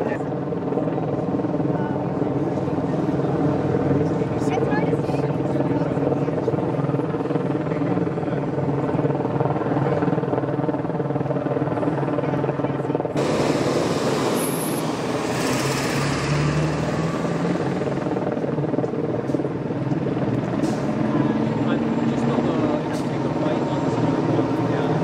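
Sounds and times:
helicopter rotor drone: 0.0s - 25.0s
loud rushing noise: 13.2s - 18.5s.

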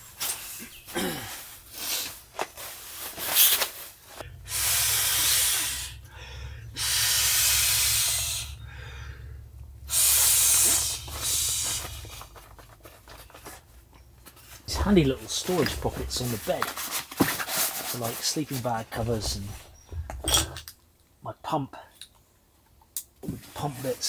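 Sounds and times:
breath blowing into valve: 4.3s - 12.3s.

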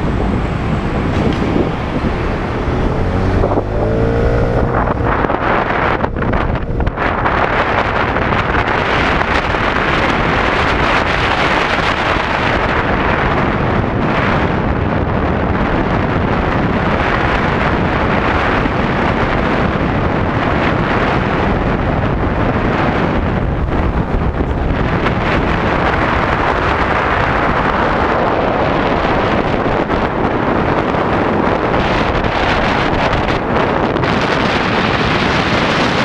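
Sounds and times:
scooter running: 0.0s - 14.0s
road noise: 0.0s - 36.0s
wind rushing over microphone: 0.0s - 36.0s.

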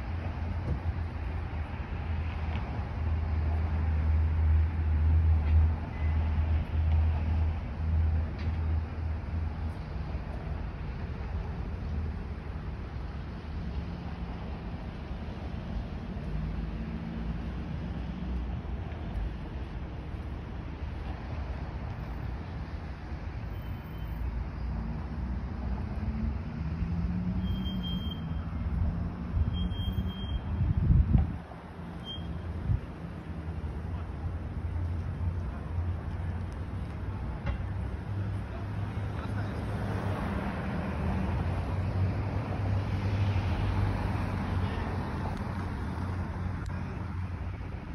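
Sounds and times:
road traffic rumble: 0.0s - 47.9s
vehicle engine hum: 0.0s - 47.9s
short high squeal: 27.4s - 28.5s, 29.4s - 30.6s, 32.0s - 32.5s.

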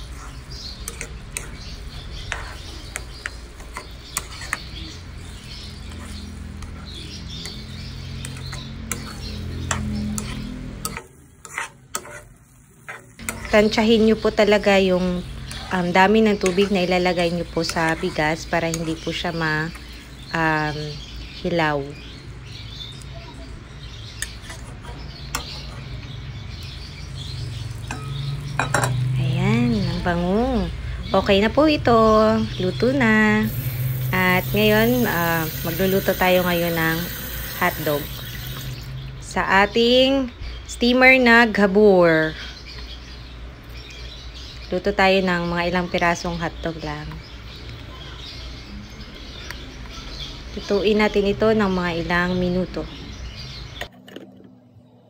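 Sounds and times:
metal spatula scraping a pan: 0.0s - 20.0s, 24.1s - 26.0s
faint bird chirps: 13.2s - 28.6s.

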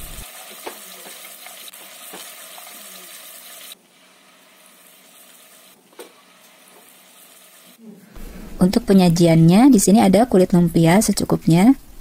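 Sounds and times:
food sizzling in a wok: 0.0s - 7.8s.

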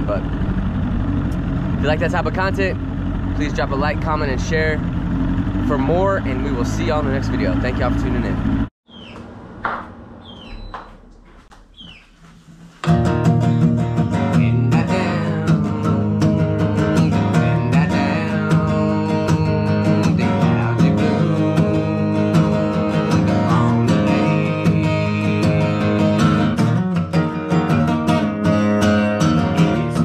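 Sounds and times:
acoustic guitar strumming: 12.4s - 30.0s.

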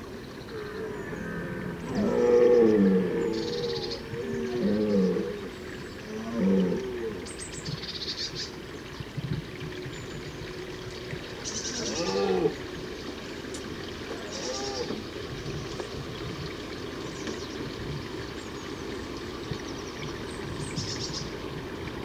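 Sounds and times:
deer stag roaring: 0.5s - 5.5s, 11.6s - 12.6s, 14.1s - 15.0s.

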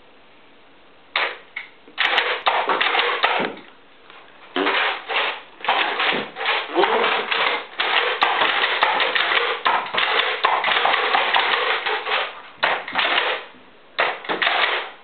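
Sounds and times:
toy dart blasters pumped and fired: 2.0s - 3.6s, 4.6s - 14.9s.

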